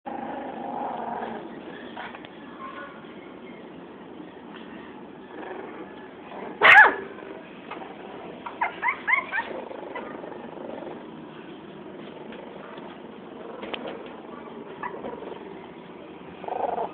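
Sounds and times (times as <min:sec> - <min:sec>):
puppy yelping: 0:06.6 - 0:07.0, 0:08.4 - 0:10.5, 0:14.3 - 0:15.3.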